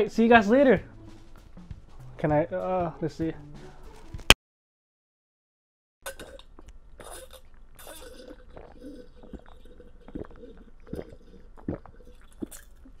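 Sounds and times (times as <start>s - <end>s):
person gulping a drink: 6.0s - 13.0s.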